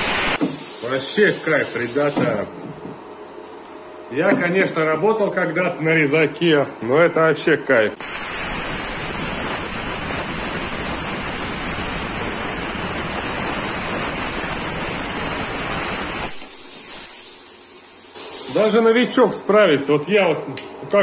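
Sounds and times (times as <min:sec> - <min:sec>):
thin high hiss of air: 0:00.0 - 0:02.4, 0:08.0 - 0:18.8
plasma cutter hissing: 0:00.0 - 0:02.5, 0:08.0 - 0:19.0.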